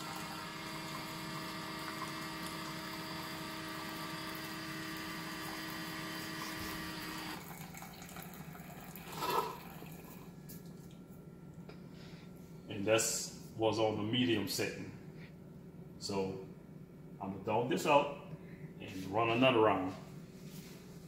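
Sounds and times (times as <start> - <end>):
water pouring into a mug: 0.0 - 10.4
coffee maker pump humming: 0.0 - 11.0.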